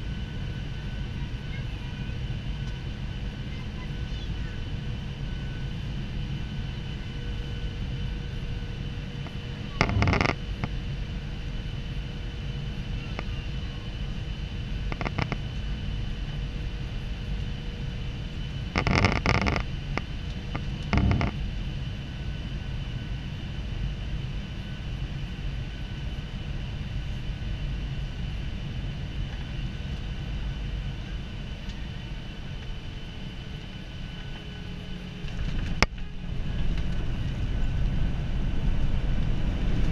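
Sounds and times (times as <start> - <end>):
aircraft engine and airflow drone: 0.0 - 39.9
whining engine tones: 9.2 - 10.8, 18.7 - 21.4.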